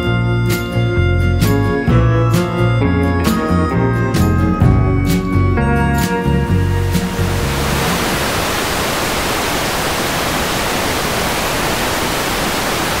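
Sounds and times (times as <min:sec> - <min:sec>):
background music: 0:00.0 - 0:08.3
steady static hiss: 0:06.5 - 0:13.0.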